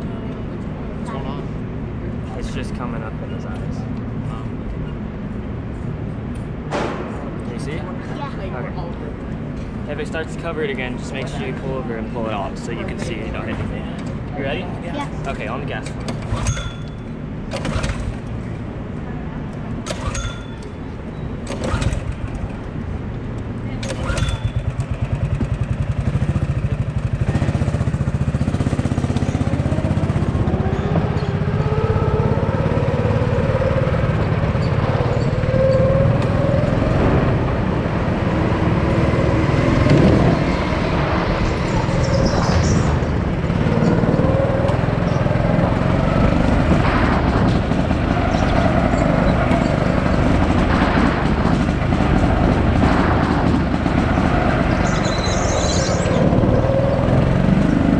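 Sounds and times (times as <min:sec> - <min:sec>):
go-kart motor revving: 0:12.5 - 0:18.6, 0:19.8 - 0:57.9.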